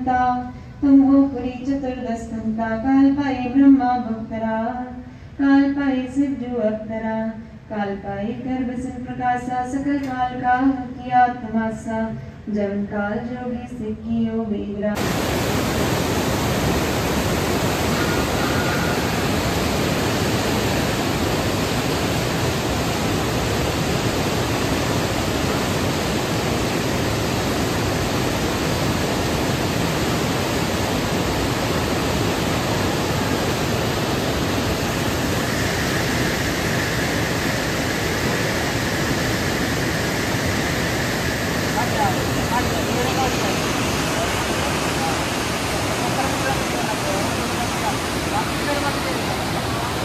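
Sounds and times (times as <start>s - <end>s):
river roaring over white water: 15.0s - 50.0s.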